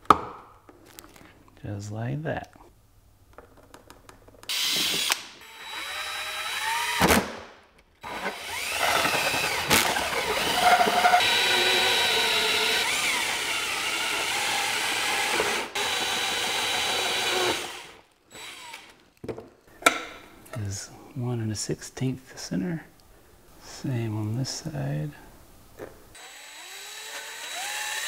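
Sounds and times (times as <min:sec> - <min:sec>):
cordless drill cutting plastic: 0:04.5 - 0:07.2, 0:08.0 - 0:19.0, 0:26.2 - 0:28.0.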